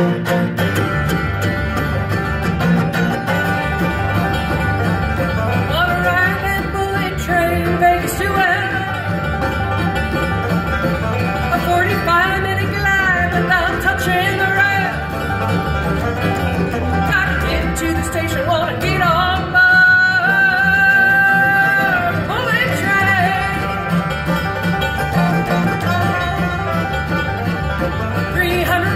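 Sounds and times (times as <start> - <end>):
bluegrass band playing: 0.0 - 28.9.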